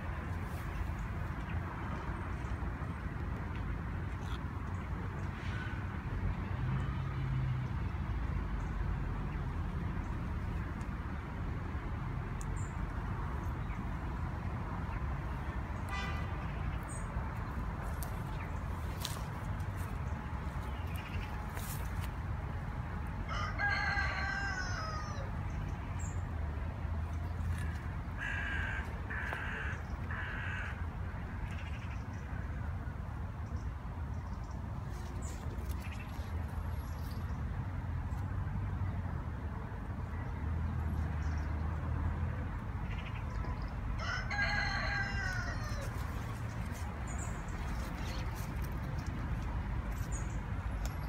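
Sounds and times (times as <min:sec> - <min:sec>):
rooster crowing: 0:23.3 - 0:25.3, 0:44.0 - 0:46.1
crow cawing: 0:28.2 - 0:30.8.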